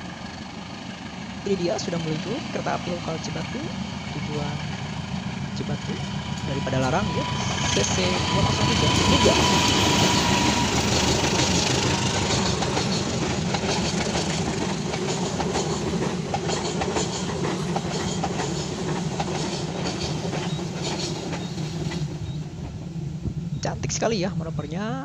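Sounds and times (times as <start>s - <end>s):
diesel locomotive passing: 0.0s - 25.0s
train wheels clicking over rail joints: 7.2s - 22.8s.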